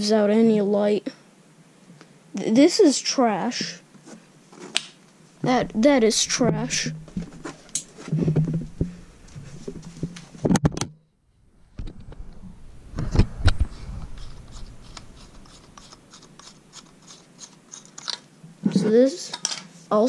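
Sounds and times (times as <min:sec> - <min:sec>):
rustling: 0:03.6 - 0:10.6, 0:11.7 - 0:18.9
low hum: 0:05.4 - 0:17.0.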